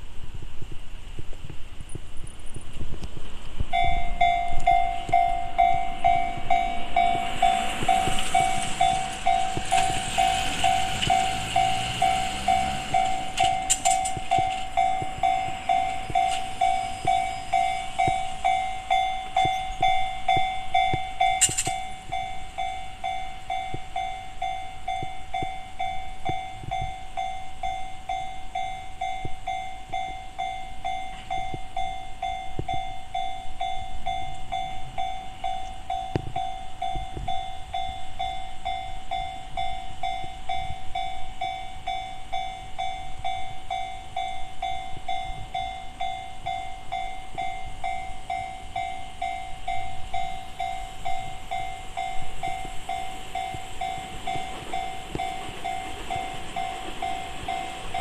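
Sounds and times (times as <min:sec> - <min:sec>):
vehicle passing: 0:05.8 - 0:15.9.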